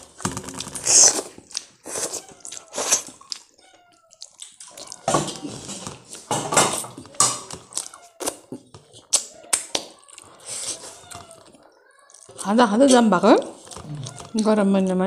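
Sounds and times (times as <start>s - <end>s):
person chewing and smacking: 0.0s - 14.6s.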